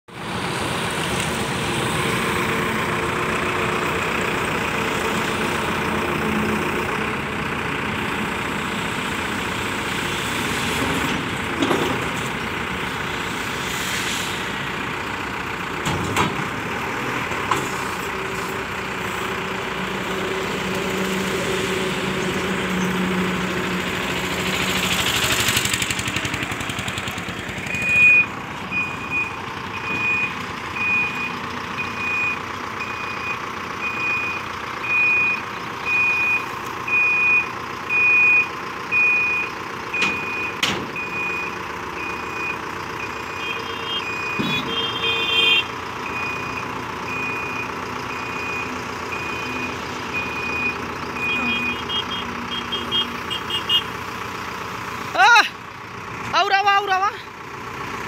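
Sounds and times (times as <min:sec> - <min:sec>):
diesel engine running: 0:00.1 - 0:58.0
reversing alarm beeping: 0:27.7 - 0:45.0, 0:46.0 - 0:53.7.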